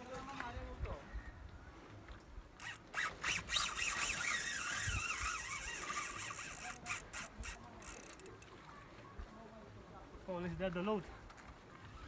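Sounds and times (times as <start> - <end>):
fishing reel clicks: 2.6 - 8.5
fishing reel drag whine: 2.6 - 8.5.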